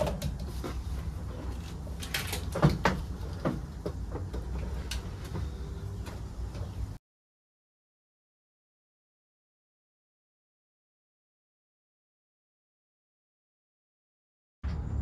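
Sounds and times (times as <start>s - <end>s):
bumper knocking and clattering: 0.0s - 7.0s.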